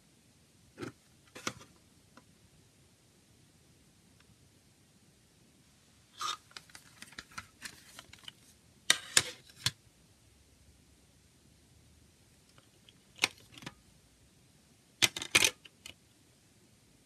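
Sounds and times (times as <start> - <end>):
plastic case clacks: 15.0 - 16.0.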